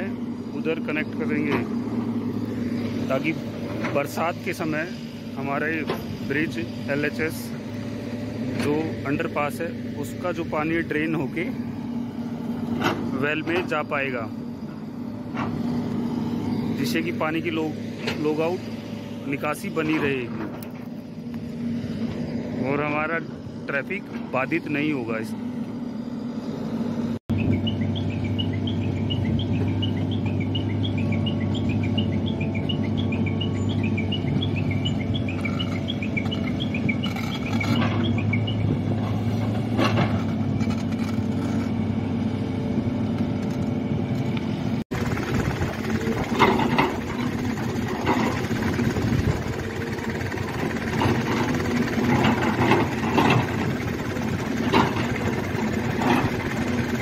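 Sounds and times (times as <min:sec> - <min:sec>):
excavator diesel engine running: 0:00.0 - 0:57.0
high chirping: 0:27.3 - 0:38.8.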